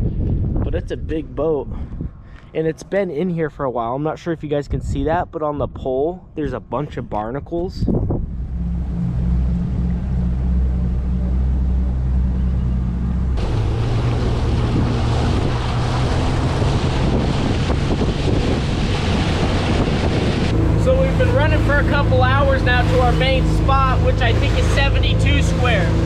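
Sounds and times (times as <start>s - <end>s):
wind buffeting microphone: 0.0s - 3.6s, 4.3s - 26.0s
boat engine humming: 7.9s - 26.0s
rushing wake water: 8.0s - 26.0s.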